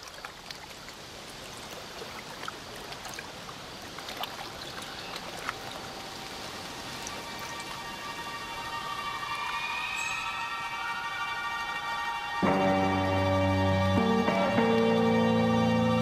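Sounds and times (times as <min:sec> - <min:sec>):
rushing trickling noise: 0:00.0 - 0:12.2
held musical tones: 0:07.1 - 0:16.0.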